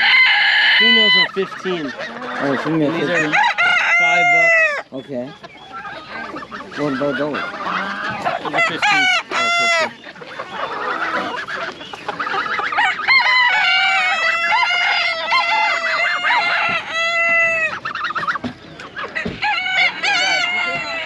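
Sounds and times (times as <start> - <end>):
hens clucking: 0.0 - 21.0
roosters crowing: 0.0 - 21.0.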